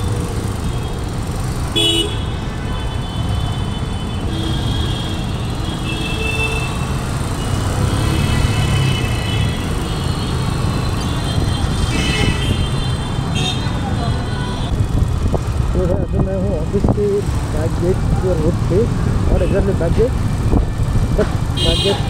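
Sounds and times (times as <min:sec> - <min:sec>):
road and wind noise: 0:00.0 - 0:22.0
motorcycle engine running: 0:14.2 - 0:21.8.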